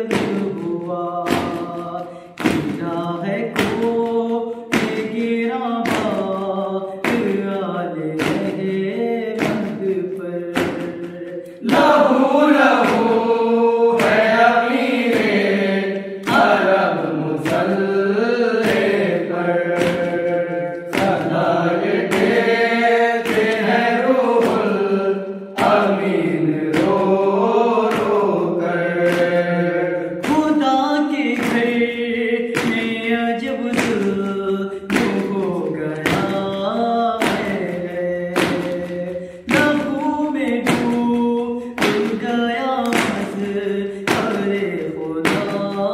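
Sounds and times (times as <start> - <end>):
men chanting together: 10.8 - 39.9.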